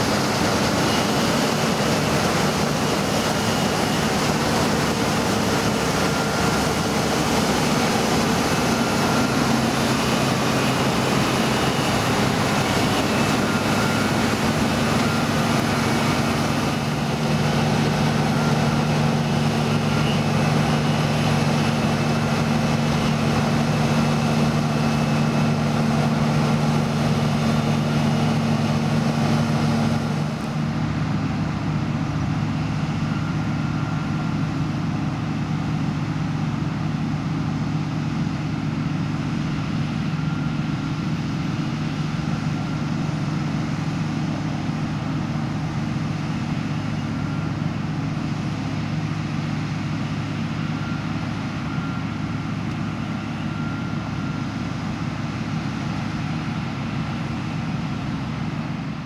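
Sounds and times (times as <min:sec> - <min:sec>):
diesel engine drone: 0:00.0 - 0:59.0
threshing machinery noise: 0:00.0 - 0:59.0.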